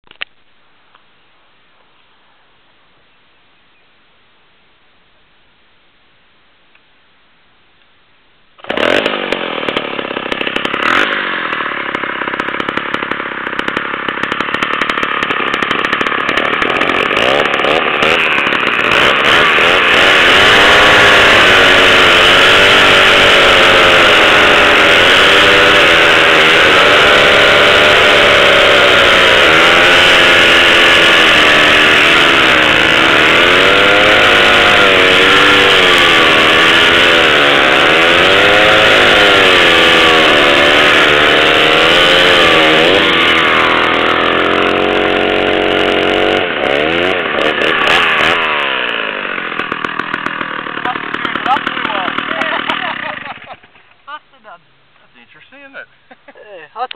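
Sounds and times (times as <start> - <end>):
chainsaws cutting logs: 8.6 - 54.5.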